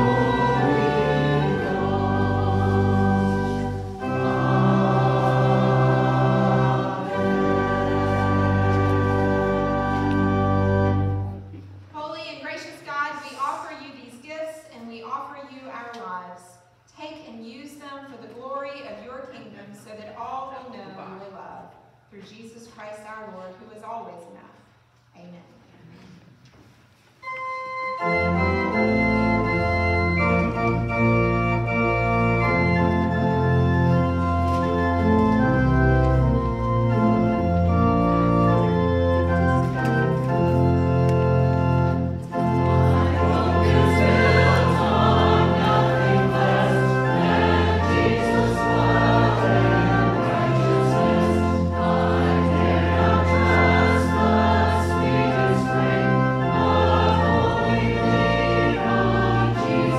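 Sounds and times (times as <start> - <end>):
choir singing: 0.0 - 11.4, 41.6 - 59.9
church organ chords: 0.0 - 11.6, 27.2 - 59.9.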